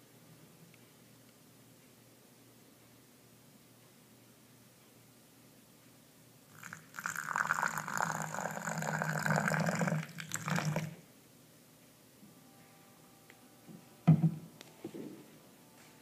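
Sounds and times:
water pouring into a can: 0:06.5 - 0:11.0.

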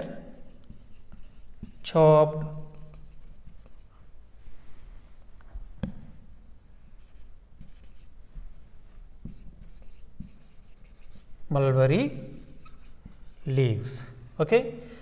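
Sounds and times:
marker scratching on whiteboard: 0:00.0 - 0:04.1, 0:07.0 - 0:13.9.

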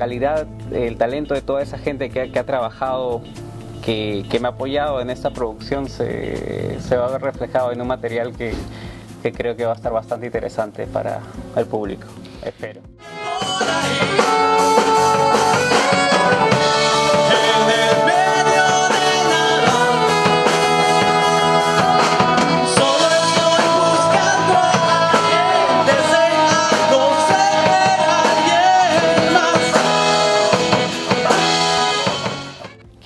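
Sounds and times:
drum kit: 0:00.0 - 0:33.0
electric and acoustic guitars: 0:00.3 - 0:07.6, 0:11.2 - 0:33.0
man singing lead vocals: 0:13.0 - 0:32.8
saxophone: 0:13.0 - 0:33.0.

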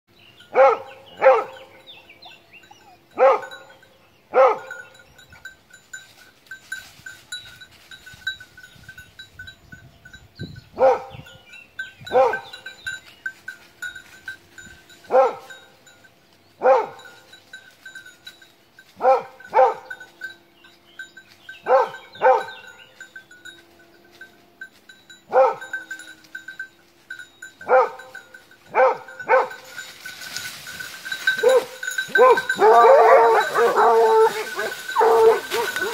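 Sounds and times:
dogs barking: 0:00.5 - 0:01.9, 0:02.7 - 0:05.0, 0:10.8 - 0:11.3, 0:12.0 - 0:12.7, 0:15.1 - 0:15.7, 0:16.6 - 0:17.3, 0:19.0 - 0:20.0, 0:21.6 - 0:22.8, 0:25.3 - 0:25.9, 0:27.6 - 0:29.7, 0:31.3 - 0:35.9.

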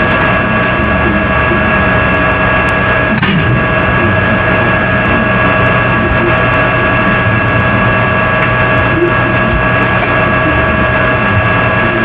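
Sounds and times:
steady hiss and hum: 0:00.0 - 0:12.0
steady whining tones: 0:00.0 - 0:12.0.

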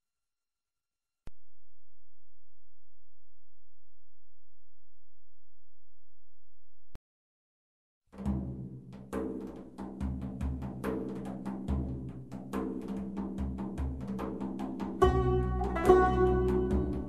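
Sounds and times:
percussive strikes: 0:08.2 - 0:17.0.

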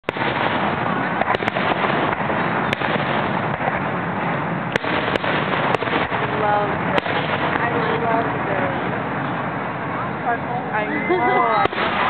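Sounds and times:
sharp firework cracks: 0:00.0 - 0:09.0, 0:11.6 - 0:12.0
fireworks crackle and rumble: 0:00.0 - 0:12.0.

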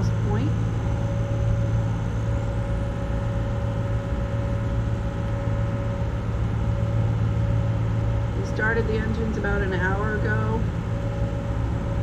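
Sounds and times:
boat diesel engines droning: 0:00.0 - 0:12.0.

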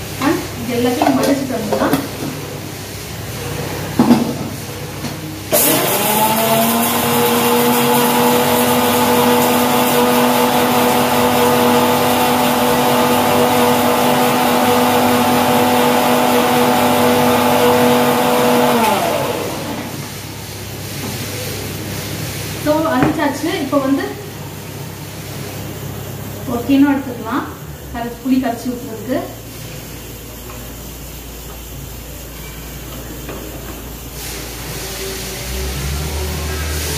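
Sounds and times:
mixer grinder motor whining: 0:05.5 - 0:20.1, 0:34.8 - 0:36.9.

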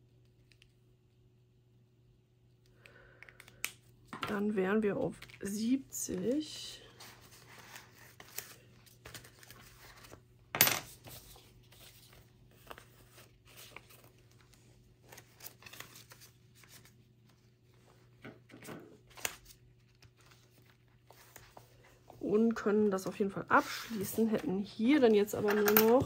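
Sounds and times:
paper and plastic rustling: 0:05.1 - 0:10.3, 0:10.9 - 0:26.0.

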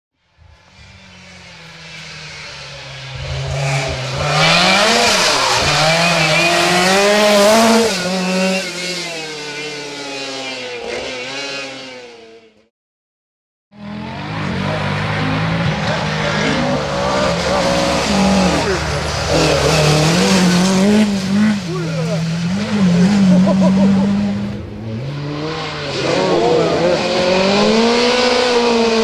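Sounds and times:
rally car engine revving: 0:00.6 - 0:12.7, 0:13.7 - 0:29.0.

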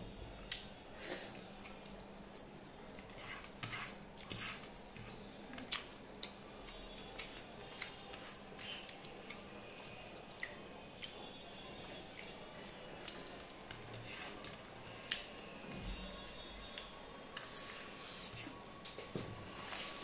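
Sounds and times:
fingers mixing food on plate: 0:01.6 - 0:11.2, 0:11.9 - 0:20.0
chewing: 0:05.0 - 0:11.3.

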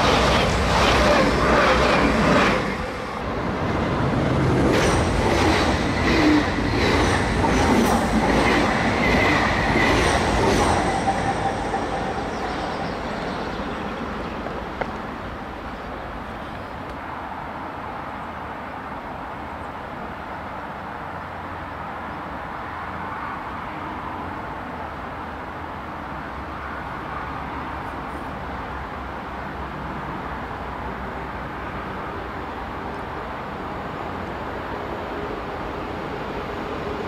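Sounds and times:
freight train rolling rumble: 0:00.0 - 0:17.6.

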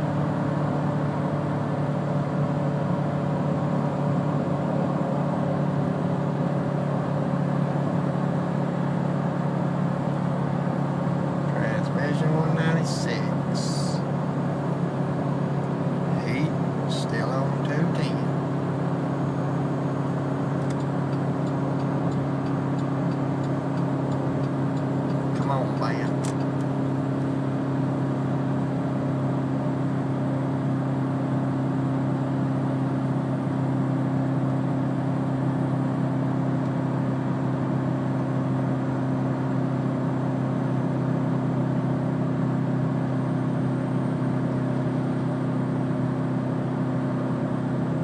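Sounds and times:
road noise: 0:00.0 - 0:48.0
truck engine droning: 0:00.0 - 0:48.0.

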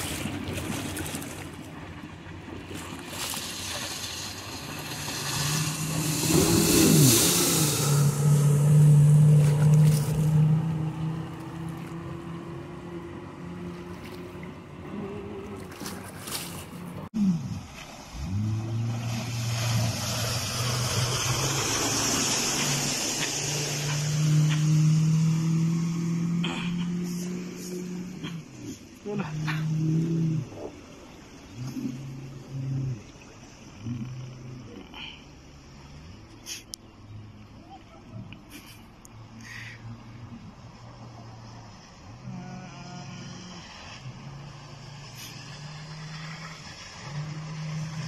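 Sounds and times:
outboard motor running: 0:00.0 - 0:17.1
outboard motor at high speed: 0:00.0 - 0:48.0
wind: 0:00.0 - 0:48.0
boat hull spray: 0:02.7 - 0:14.5, 0:17.7 - 0:29.5, 0:41.0 - 0:48.0.

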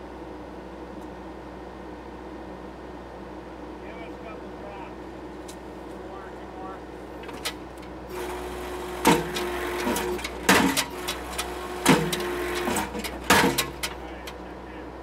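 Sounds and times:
diesel engine and hydraulics running: 0:00.0 - 0:15.0
post driver striking wooden post: 0:09.0 - 0:14.0.

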